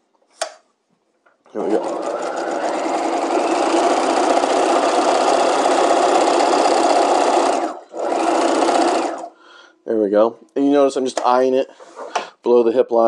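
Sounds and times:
sewing machine running: 1.6s - 9.4s.

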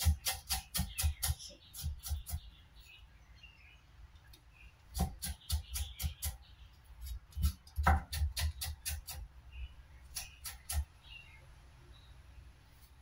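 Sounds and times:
cleaver chopping on wooden board: 0.0s - 2.4s, 4.9s - 6.4s, 7.0s - 9.2s, 10.1s - 10.9s.

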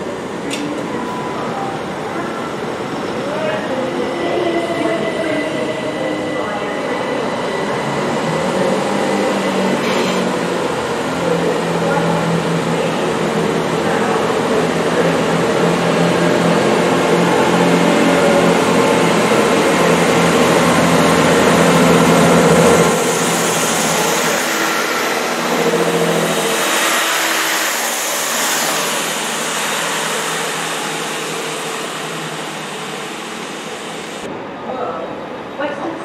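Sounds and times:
train wheels on rails: 4.3s - 34.3s
diesel train engine hum: 7.6s - 34.6s.

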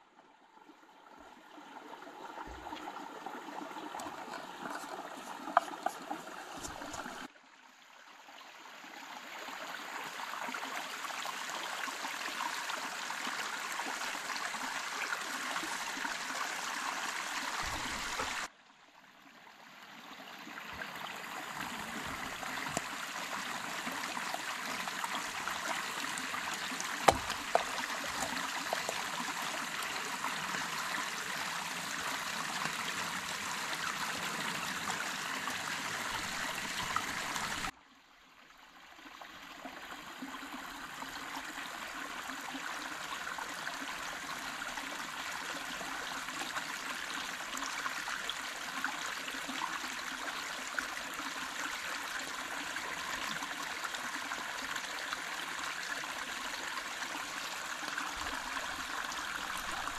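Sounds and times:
rocky stream running: 1.0s - 7.3s, 8.8s - 18.5s, 20.0s - 37.8s, 39.4s - 59.9s
sharp knocks: 27.0s - 27.7s.

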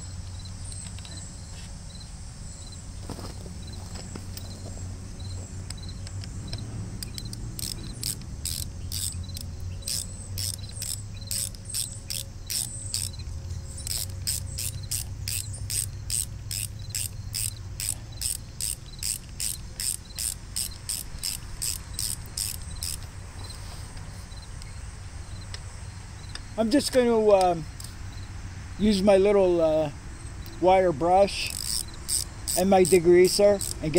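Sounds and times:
ratchet wrench clicking: 5.6s - 23.1s, 31.3s - 33.9s.

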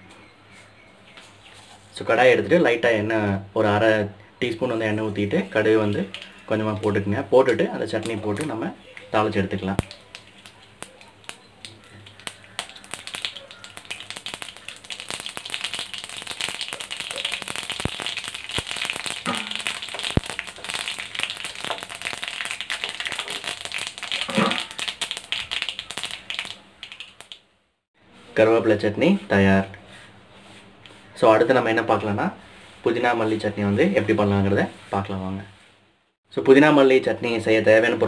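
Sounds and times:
seeds popping in hot oil: 4.5s - 27.5s.

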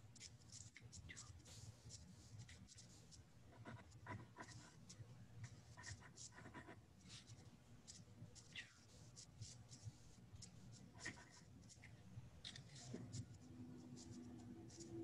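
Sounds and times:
pen scratching on paper: 5.6s - 11.9s, 12.5s - 15.0s.

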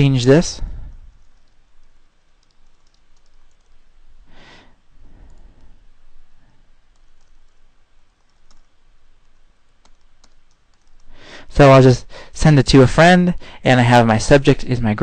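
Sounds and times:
keyboard typing clicks: 1.1s - 3.8s, 6.9s - 11.1s.

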